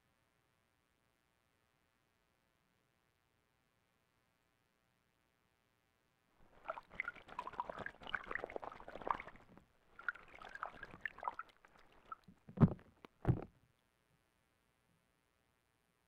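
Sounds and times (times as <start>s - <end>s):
bird splashing in water: 6.5s - 12.8s.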